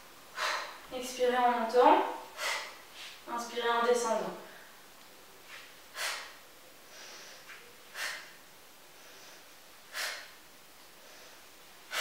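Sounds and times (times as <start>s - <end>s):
woman breathing hard: 0.3s - 0.9s, 2.2s - 3.2s, 5.9s - 12.0s.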